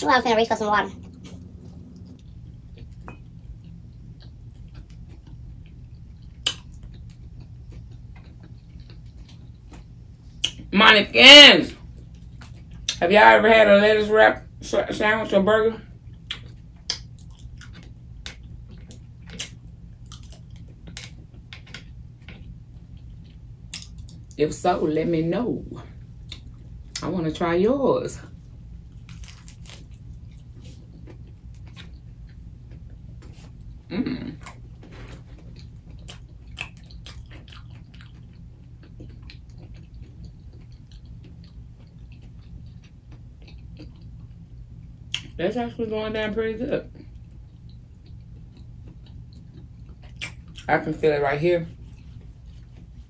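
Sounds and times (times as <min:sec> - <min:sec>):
steady low hum: 0:00.0 - 0:53.0
person chewing food: 0:00.9 - 0:10.7, 0:15.9 - 0:24.4, 0:28.4 - 0:45.3, 0:47.0 - 0:50.7, 0:51.7 - 0:53.0.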